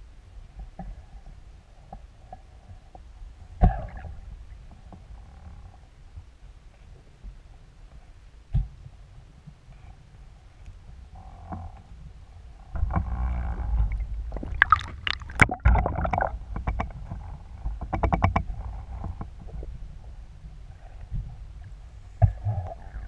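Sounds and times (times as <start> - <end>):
muffled underwater rumble: 0.0 - 23.0
water sloshing and splashing: 13.6 - 16.8
water dripping: 13.9 - 16.4.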